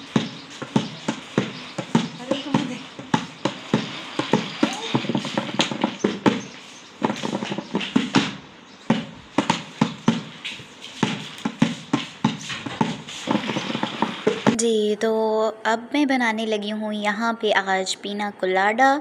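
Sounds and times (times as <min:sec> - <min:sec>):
footsteps on tiled floor: 0:00.0 - 0:14.6.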